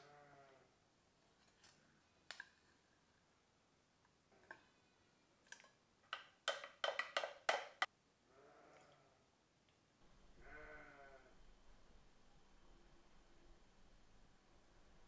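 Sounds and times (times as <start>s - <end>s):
faint bleat: 0.0s - 0.7s, 8.3s - 9.2s, 10.4s - 11.4s
metal spoon tapping glass jug: 6.1s - 7.9s.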